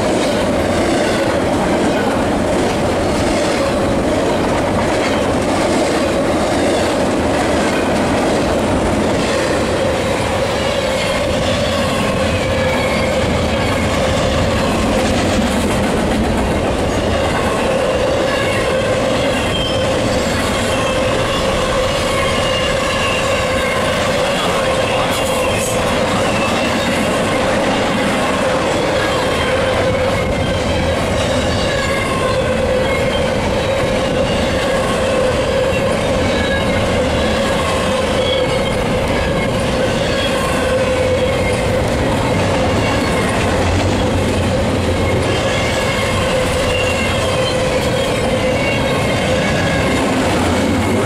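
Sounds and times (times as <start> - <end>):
freight train rumbling past: 0.0 - 51.0
wheels squealing: 17.0 - 28.2, 44.9 - 51.0.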